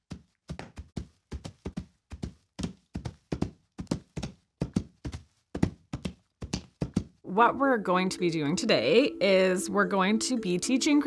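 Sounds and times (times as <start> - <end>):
horse hoofbeats clip-clops: 0.0 - 7.2.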